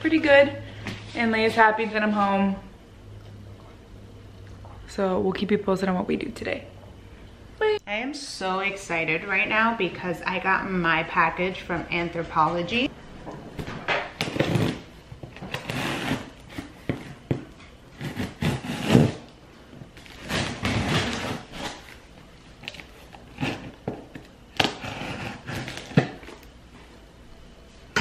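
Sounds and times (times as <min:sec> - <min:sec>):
packaging rustling and scraping: 0:14.2 - 0:17.3, 0:19.9 - 0:22.0, 0:22.6 - 0:26.4.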